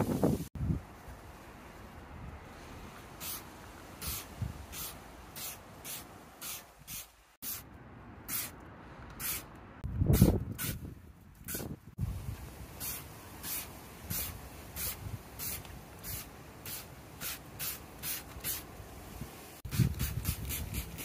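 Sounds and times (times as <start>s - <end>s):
spray bottle squirting: 3.2s - 3.4s, 4.0s - 7.6s, 8.3s - 8.6s, 9.2s - 9.5s, 10.1s - 10.8s, 11.4s - 11.8s, 12.8s - 18.7s, 19.7s - 21.0s.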